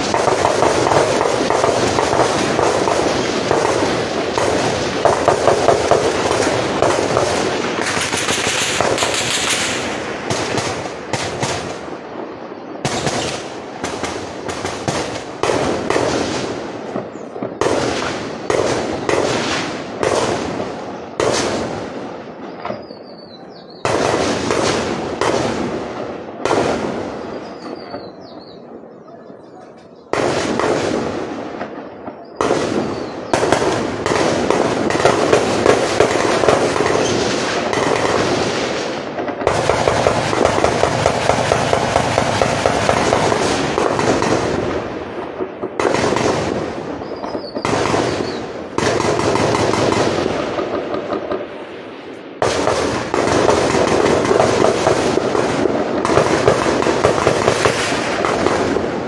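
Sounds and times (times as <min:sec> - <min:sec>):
gunfire bursts: 0:00.0 - 0:12.0, 0:12.8 - 0:22.0, 0:23.8 - 0:27.5, 0:30.1 - 0:31.7, 0:32.4 - 0:51.7, 0:52.4 - 0:59.0.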